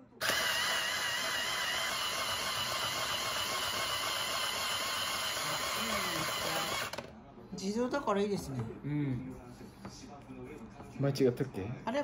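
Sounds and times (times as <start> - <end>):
shaved-ice machine grinding ice: 0.2 - 7.0.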